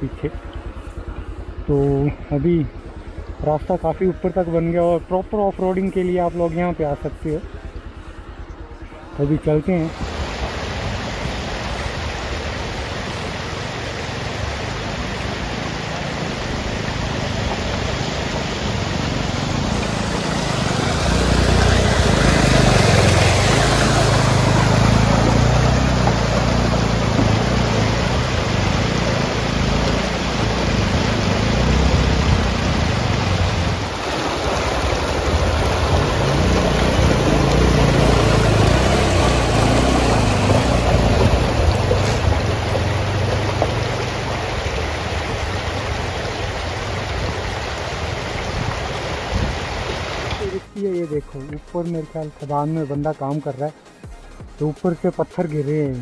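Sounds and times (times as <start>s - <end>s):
loud steady rushing noise: 0.0s - 51.1s
motorcycle engine running: 0.0s - 53.2s.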